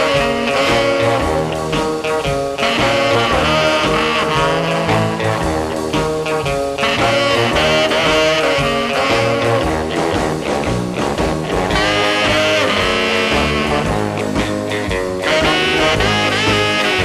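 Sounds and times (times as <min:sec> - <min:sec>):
orchestral instrumental music: 0:00.0 - 0:17.0.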